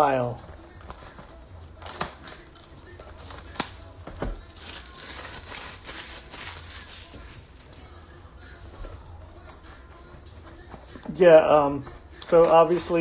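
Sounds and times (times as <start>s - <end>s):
packaging crinkling and rustling: 0.4s - 8.0s.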